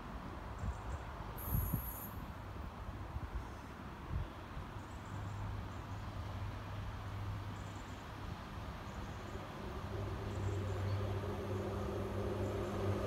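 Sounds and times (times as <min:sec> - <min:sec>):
diesel train engine droning: 0:08.7 - 0:13.0.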